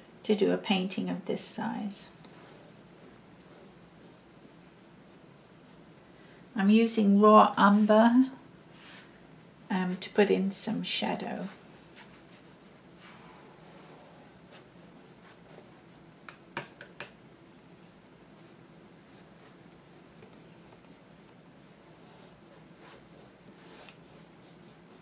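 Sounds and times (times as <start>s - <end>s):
paintbrush strokes on canvas: 11.4s - 13.4s, 17.8s - 25.0s.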